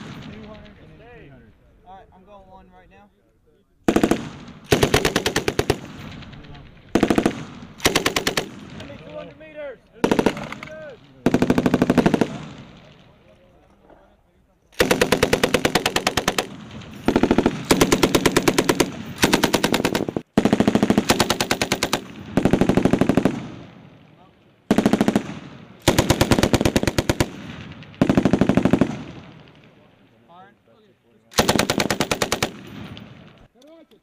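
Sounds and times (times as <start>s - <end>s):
machine gun firing bursts: 3.9s - 8.8s, 10.0s - 12.8s, 14.8s - 23.7s, 24.7s - 29.5s, 31.3s - 33.4s.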